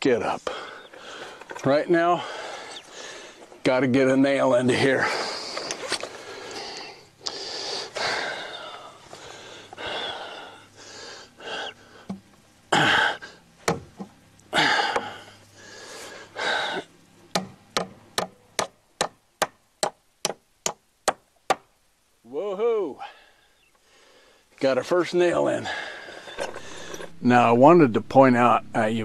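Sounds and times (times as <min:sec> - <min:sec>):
breathy sounds: 0:00.4 - 0:01.6, 0:02.2 - 0:03.6, 0:04.9 - 0:13.4, 0:14.5 - 0:16.9, 0:25.5 - 0:27.3.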